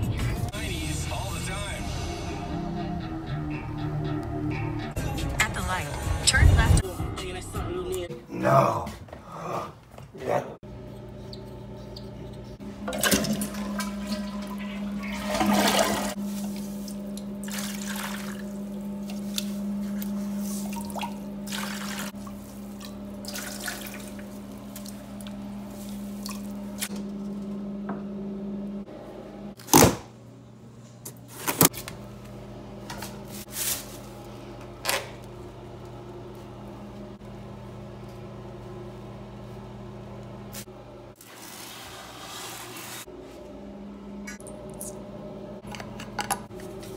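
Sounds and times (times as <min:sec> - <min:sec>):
water filling toilet tank: 0:12.8 - 0:19.2, 0:20.6 - 0:25.4.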